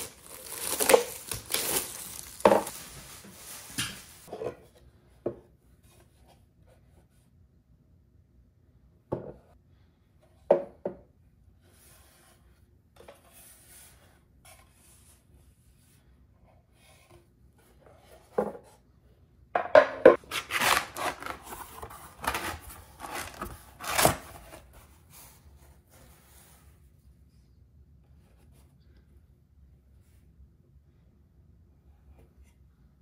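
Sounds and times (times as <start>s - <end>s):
paper rustling and scraping: 0.0s - 4.3s, 20.2s - 26.7s.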